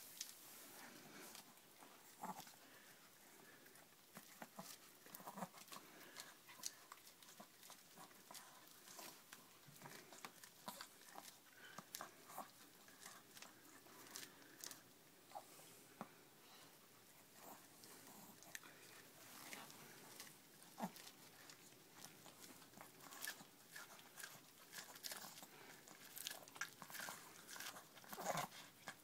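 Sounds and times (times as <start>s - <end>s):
dog gnawing corn cob: 0.1s - 29.0s.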